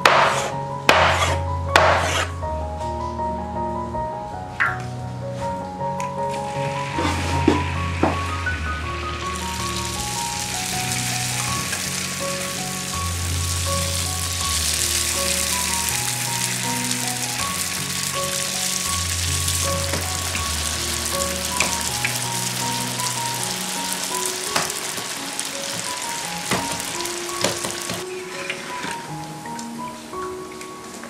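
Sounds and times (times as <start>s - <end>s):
background music: 0.0s - 31.0s
dough deep-frying in hot oil: 6.3s - 29.4s.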